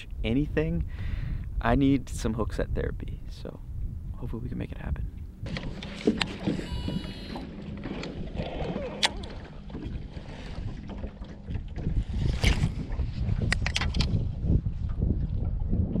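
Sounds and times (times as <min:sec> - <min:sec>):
wind buffeting microphone: 0:00.0 - 0:07.1, 0:07.8 - 0:16.0
water lapping against boat hull: 0:05.0 - 0:16.0.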